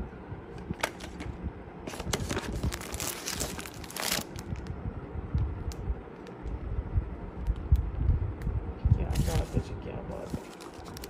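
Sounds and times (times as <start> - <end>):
wrapping crinkling and rustling: 1.9 - 4.7, 9.1 - 11.0.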